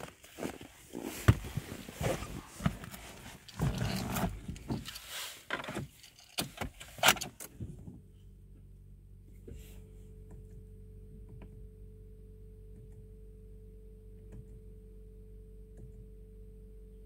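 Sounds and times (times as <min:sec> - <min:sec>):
clicks and rustling in car cabin: 0:00.0 - 0:08.2, 0:09.4 - 0:11.8, 0:14.2 - 0:14.7
low hum: 0:07.6 - 0:17.0.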